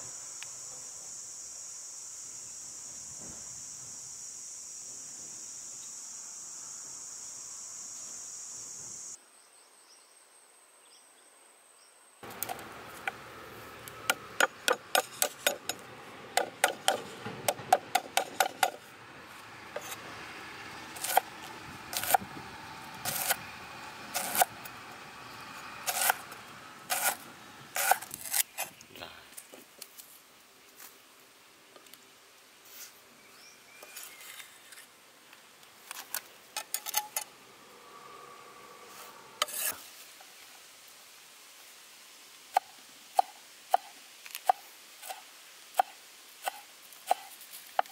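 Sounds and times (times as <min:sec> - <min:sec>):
crickets trilling: 0:00.0 - 0:09.2
blade scraping cutting board: 0:16.4 - 0:18.8, 0:19.7 - 0:20.0, 0:20.9 - 0:22.3, 0:23.0 - 0:23.4, 0:24.1 - 0:24.6, 0:25.5 - 0:28.8, 0:39.4 - 0:39.8.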